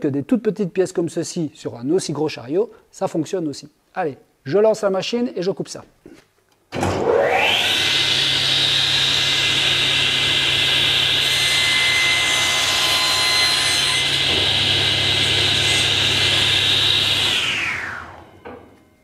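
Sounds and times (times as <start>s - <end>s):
table saw whining: 6.8s - 19.0s
saw blade cutting wood: 7.0s - 18.4s.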